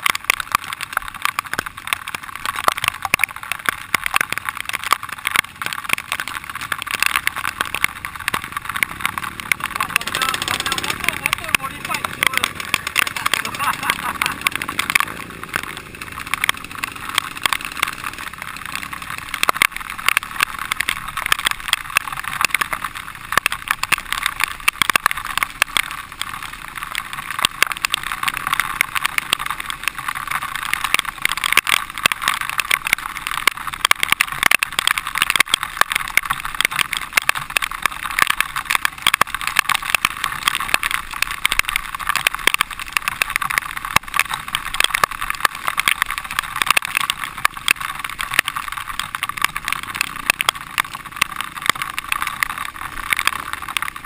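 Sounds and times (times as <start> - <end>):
dirt bike engine: 0.0 - 54.0.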